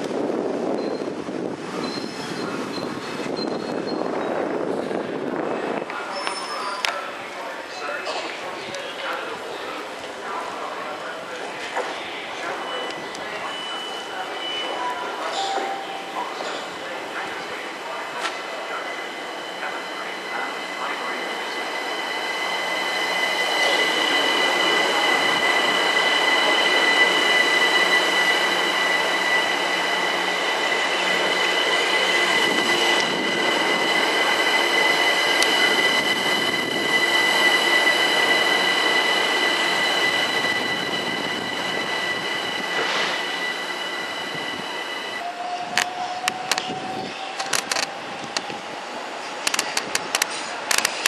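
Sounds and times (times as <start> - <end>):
electric train passing: 12.2 - 50.7
high-pitched squeal: 12.6 - 48.3
rising whine: 19.1 - 45.3.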